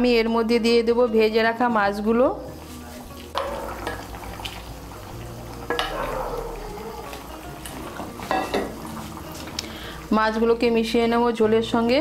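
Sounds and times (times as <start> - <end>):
spatula working in a pan: 2.5 - 10.0
curry bubbling in a pan: 3.1 - 10.4.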